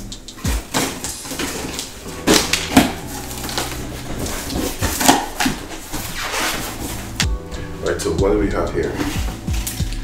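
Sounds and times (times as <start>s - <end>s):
cardboard scrapes and rustles: 3.0s - 7.2s.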